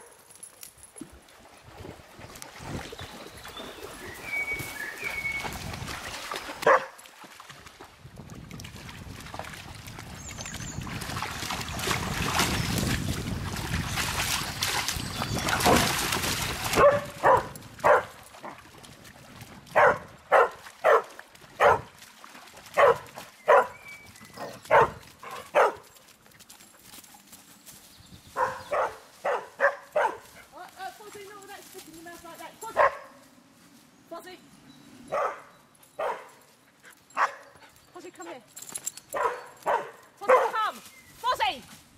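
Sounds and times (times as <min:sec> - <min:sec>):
dogs splashing through water: 0:00.4 - 0:27.6
dog barking: 0:06.6 - 0:07.0, 0:16.8 - 0:18.1, 0:19.8 - 0:21.9, 0:22.8 - 0:23.8, 0:24.4 - 0:25.8, 0:28.4 - 0:30.2, 0:32.8 - 0:33.2, 0:35.1 - 0:36.4, 0:37.2 - 0:37.5, 0:39.2 - 0:40.6.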